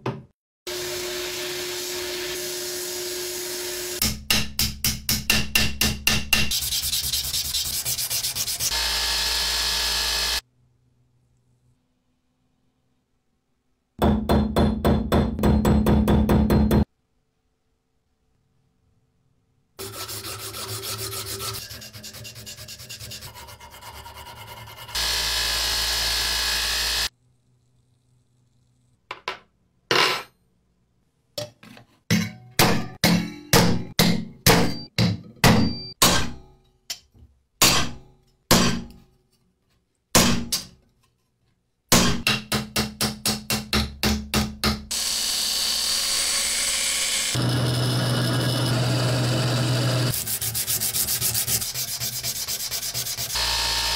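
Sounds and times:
drill cutting sheet steel: 0.7 - 4.0, 8.7 - 10.4, 24.9 - 27.1, 44.9 - 50.6, 53.1 - 53.9
sanding metal with abrasive paper: 6.5 - 8.7, 19.8 - 25.0, 50.1 - 53.4.

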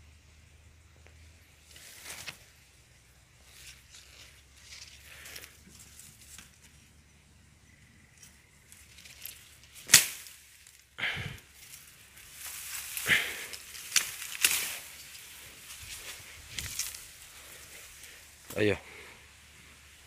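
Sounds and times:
bamboo leaves rustling: 1.1 - 7.0, 8.0 - 20.0
bamboo cane cracking: 3.5 - 6.8, 8.1 - 18.6.

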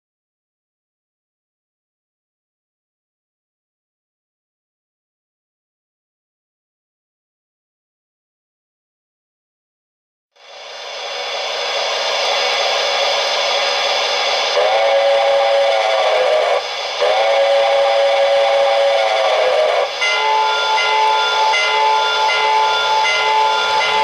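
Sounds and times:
loud steam hiss: 10.4 - 24.0
steam whistle: 10.6 - 24.0.

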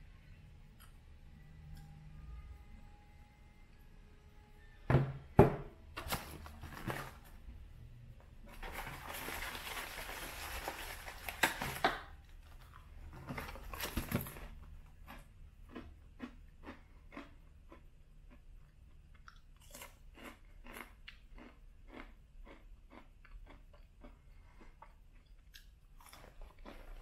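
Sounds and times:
packaging rustling and crinkling: 6.0 - 7.4, 8.5 - 14.6
cracker crunching: 8.5 - 18.4.

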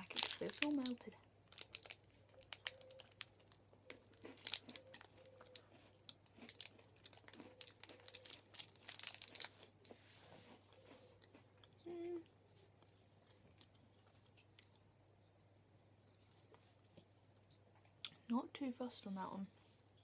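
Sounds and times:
plastic wrapper crinkling: 0.0 - 9.7
person chewing: 1.5 - 18.2.

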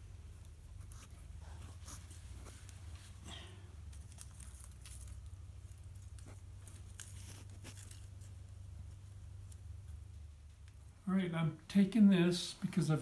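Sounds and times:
soft crackles: 0.0 - 11.0
foil tape crinkling and rustling: 3.8 - 9.6.

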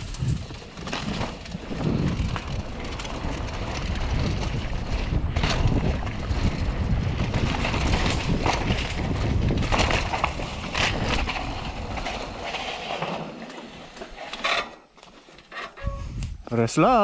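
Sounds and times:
wind buffeting microphone: 0.0 - 12.4, 15.8 - 16.5
bike rattling over bumps: 0.0 - 16.6
bike tyre noise on dirt: 0.0 - 17.0.

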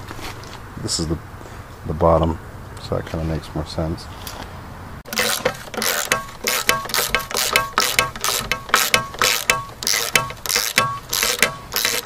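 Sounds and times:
ratchet wrench clicking: 5.1 - 12.0.

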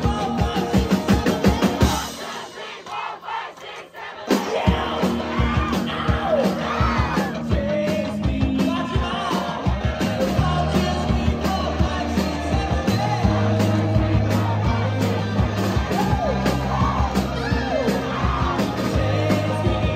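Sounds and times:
man singing: 0.0 - 2.2, 4.3 - 19.9
drums: 0.0 - 19.9
electric bass: 4.7 - 19.9.

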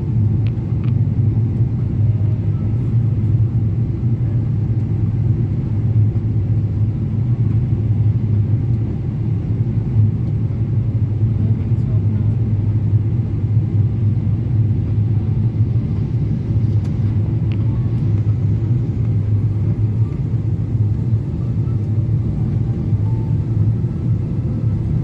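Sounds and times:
airliner engines rumbling: 0.0 - 25.0.

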